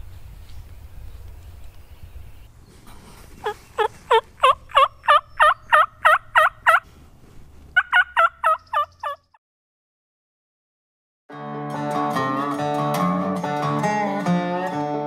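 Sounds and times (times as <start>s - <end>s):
turkey yelps: 3.4s - 6.8s, 7.8s - 9.2s.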